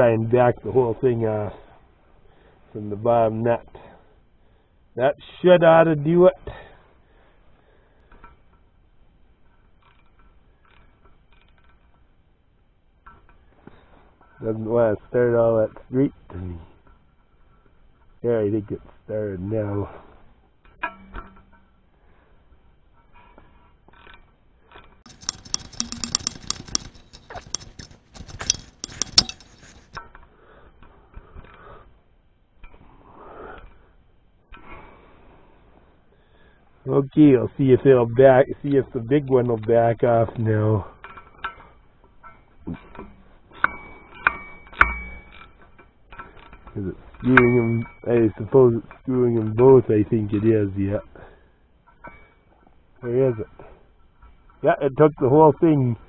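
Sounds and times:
metal nut clicking and scraping: 0:09.7 - 0:12.2, 0:23.9 - 0:30.2, 0:41.0 - 0:49.6
handling ticks: 0:25.1 - 0:30.0
wrench clicking against nut: 0:25.1 - 0:30.0.

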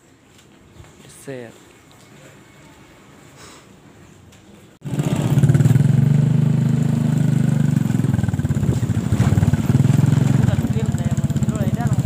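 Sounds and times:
motorcycle engine running: 0:04.8 - 0:12.0.

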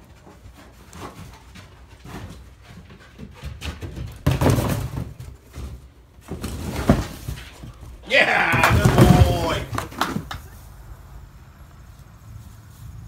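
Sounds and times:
cardboard boxes bumping and scuffing: 0:03.8 - 0:10.3
hollow thump on cardboard box: 0:08.5 - 0:10.2.

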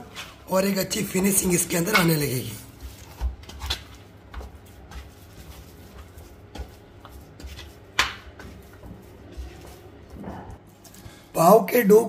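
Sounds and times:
hands kneading dough: 0:00.0 - 0:11.2
dough slaps and squelches: 0:01.8 - 0:10.2.

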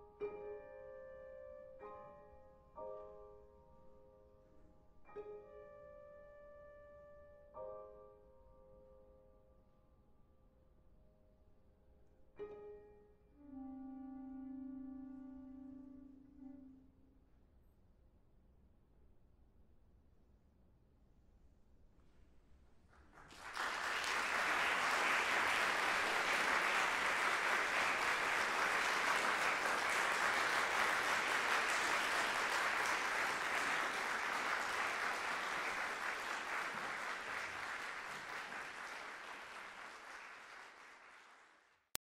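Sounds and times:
audience applauding: 0:23.0 - 0:42.0.

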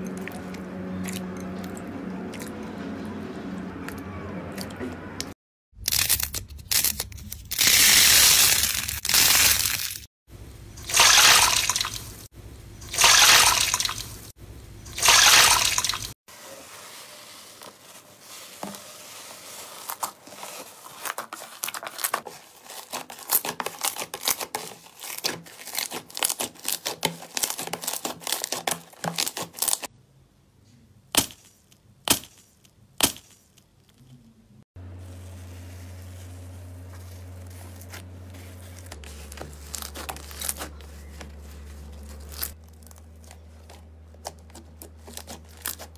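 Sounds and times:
slime squelching in water: 0:10.8 - 0:12.0, 0:12.8 - 0:14.1, 0:14.8 - 0:16.2.

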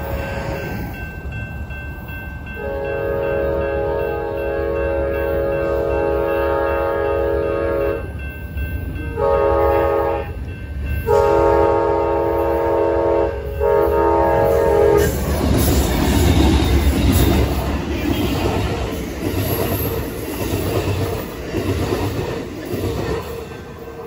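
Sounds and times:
train wheels on rails: 0:00.0 - 0:24.0
locomotive air horn blasts: 0:02.6 - 0:08.1, 0:09.1 - 0:10.4, 0:11.0 - 0:15.1.

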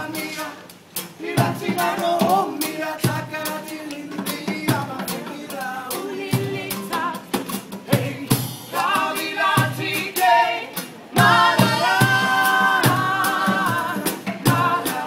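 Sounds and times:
acoustic guitars strummed: 0:00.0 - 0:15.0
drum kit beat: 0:00.0 - 0:15.0
woman singing: 0:07.9 - 0:15.0.

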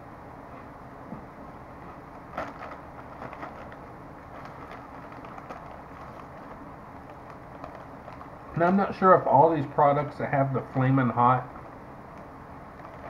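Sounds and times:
steady background noise: 0:00.0 - 0:13.0
chip bag crinkling: 0:02.1 - 0:09.0, 0:12.7 - 0:13.0
crunching crispy food: 0:02.2 - 0:09.0.

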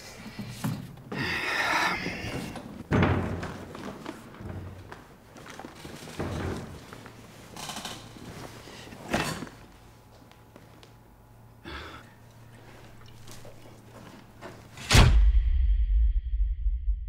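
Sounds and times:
bags and toolbox handling knocks: 0:02.6 - 0:07.1.

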